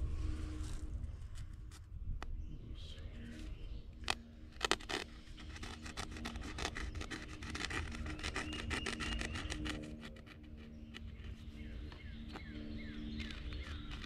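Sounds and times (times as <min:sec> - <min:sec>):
knife sawing through fabric: 0:04.0 - 0:11.6, 0:13.2 - 0:14.0.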